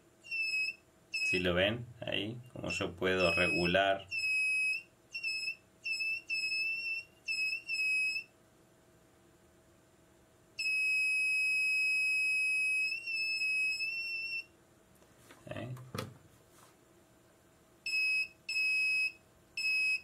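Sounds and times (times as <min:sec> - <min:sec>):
high electronic beeps: 0:03.2 - 0:08.2.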